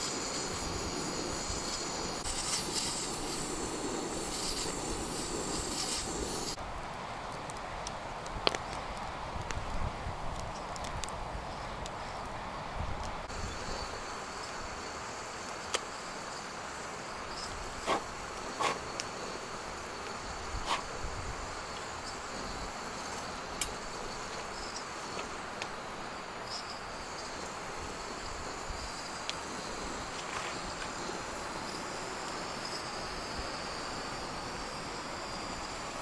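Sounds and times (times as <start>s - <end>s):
steady hiss: 0.0s - 36.0s
short sharp pops: 17.8s - 18.8s.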